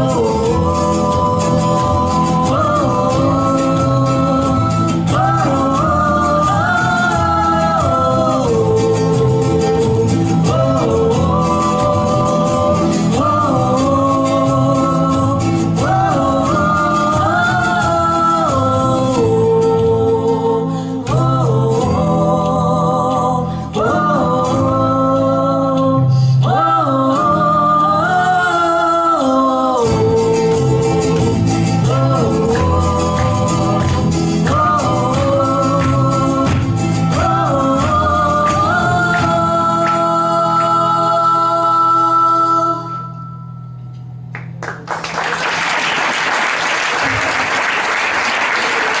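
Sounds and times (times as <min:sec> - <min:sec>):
woman singing folk song: 0:00.0 - 0:43.4
double bass: 0:00.0 - 0:45.0
acoustic guitar: 0:00.0 - 0:49.0
audience applause: 0:44.4 - 0:49.0.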